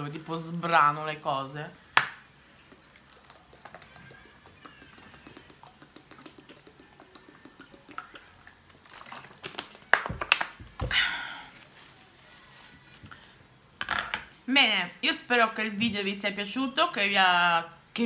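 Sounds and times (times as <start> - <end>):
plastic bottle crackling: 2.0 - 14.3
soft swallowing: 2.6 - 9.9.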